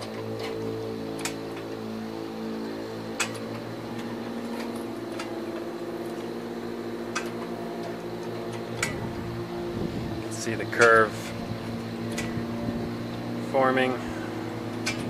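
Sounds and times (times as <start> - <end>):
metal stretcher jaws clicking: 0.0 - 1.8, 3.1 - 6.4, 7.0 - 9.2, 10.7 - 12.4, 14.7 - 15.0
low mechanical hum: 0.0 - 15.0.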